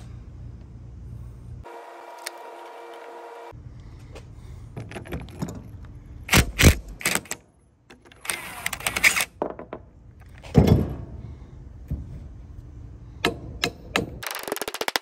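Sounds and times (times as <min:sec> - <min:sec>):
steady hum: 0:00.0 - 0:04.8.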